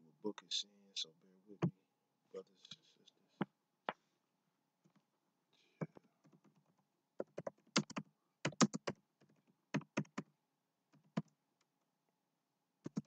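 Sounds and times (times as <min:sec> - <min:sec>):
keyboard key clicks: 0:07.2 - 0:09.0.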